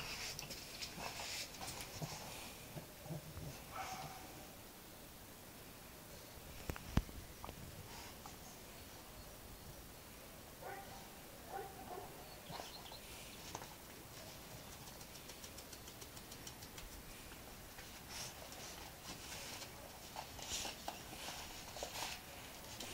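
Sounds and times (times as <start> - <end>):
claws clicking: 14.6 - 17.4
paws scuffling on mat: 17.8 - 22.9.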